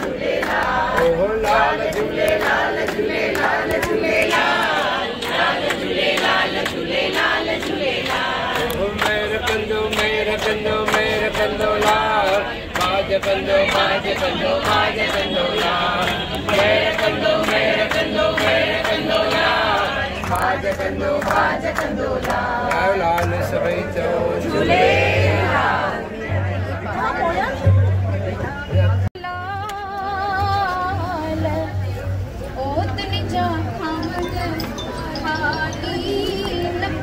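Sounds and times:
hands clapping in rhythm: 0.0 - 25.8
crowd singing in unison: 0.0 - 28.7, 33.2 - 37.0.

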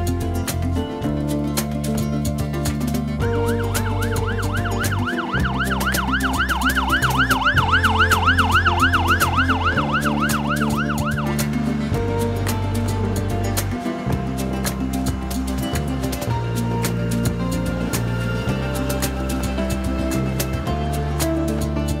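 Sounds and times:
background music: 0.0 - 22.0
fire truck siren yelping: 3.5 - 11.6.

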